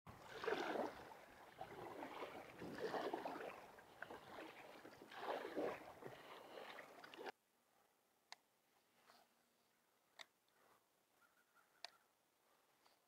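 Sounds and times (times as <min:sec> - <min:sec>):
water splashing around kayak: 0:00.1 - 0:07.4.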